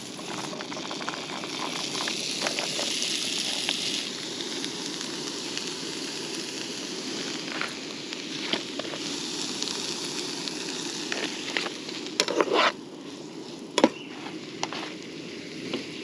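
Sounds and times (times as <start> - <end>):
vegetables sizzling in frying pan: 0.0 - 16.0
metal spatula scraping pan: 12.2 - 12.8.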